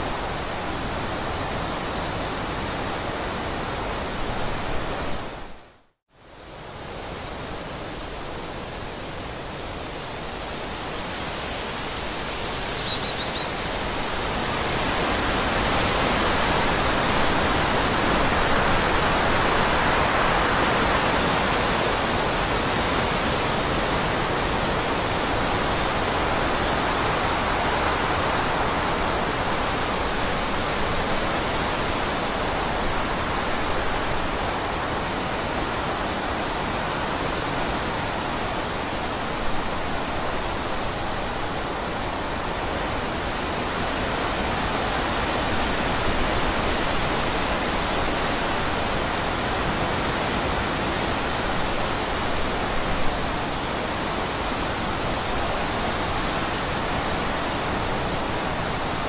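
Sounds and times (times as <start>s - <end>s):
wind rushing through trees: 0.0s - 59.0s
short high bird chirp: 8.0s - 8.6s, 12.7s - 13.5s.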